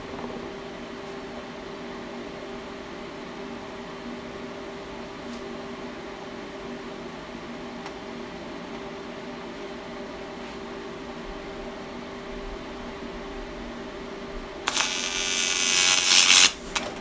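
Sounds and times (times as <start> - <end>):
cooling fan running: 0.0 - 17.0
welding machine humming: 14.7 - 17.0.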